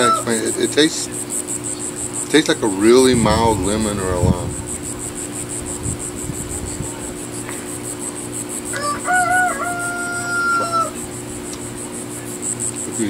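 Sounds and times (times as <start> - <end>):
rooster crowing: 0.0 - 0.4, 8.6 - 11.1
high insect chorus: 0.0 - 13.0.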